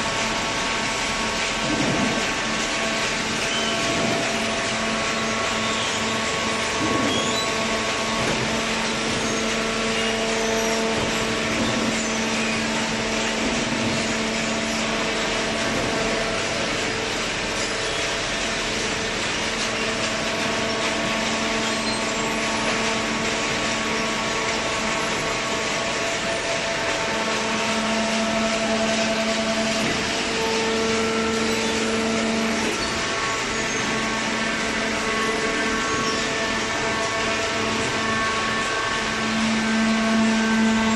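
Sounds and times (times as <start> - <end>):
baler machine humming: 0.0 - 40.9.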